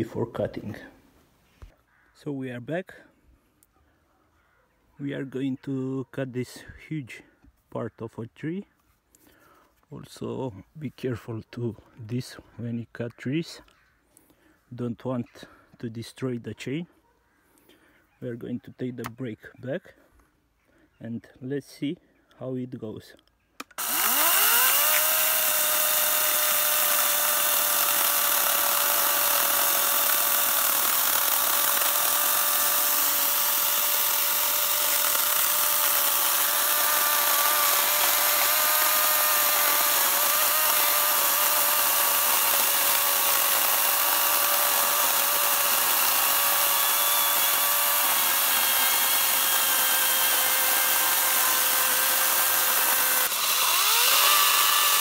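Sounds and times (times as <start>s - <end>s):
electric chainsaw cutting log: 23.6s - 55.0s.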